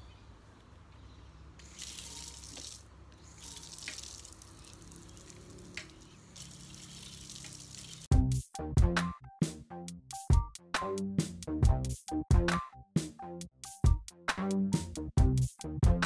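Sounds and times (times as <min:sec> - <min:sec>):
water running and splashing: 0:01.6 - 0:08.1
background music: 0:08.1 - 0:16.0.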